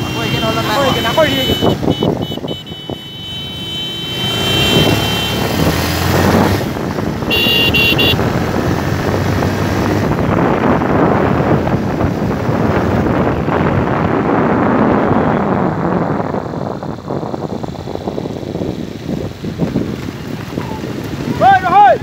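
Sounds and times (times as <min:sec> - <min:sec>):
short horn beeps: 0:00.0 - 0:05.5, 0:07.3 - 0:08.2
wind noise on microphone: 0:00.0 - 0:22.0.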